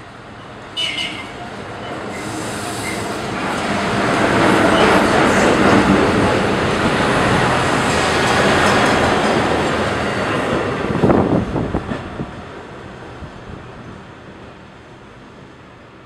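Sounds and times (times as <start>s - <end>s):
train rumbling past on rails: 0.0s - 16.0s.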